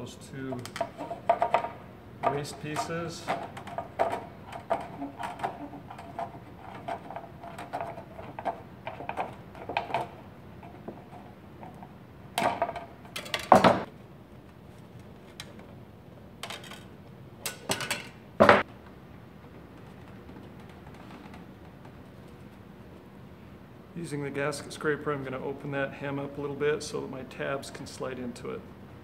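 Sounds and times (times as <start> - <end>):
knocks of tools on a bench: 0.6 - 5.6, 17.5 - 18.7.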